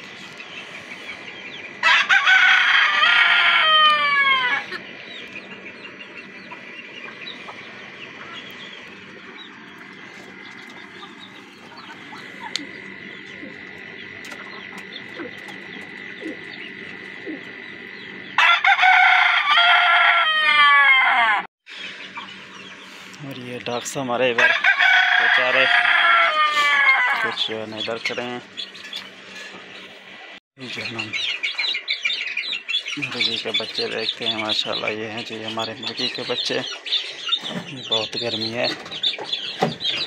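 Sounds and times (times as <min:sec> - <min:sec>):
hens clucking: 0:00.2 - 0:23.4, 0:24.0 - 0:29.9, 0:30.6 - 0:40.0
rooster crowing: 0:01.8 - 0:04.8, 0:18.2 - 0:21.5, 0:24.4 - 0:27.6.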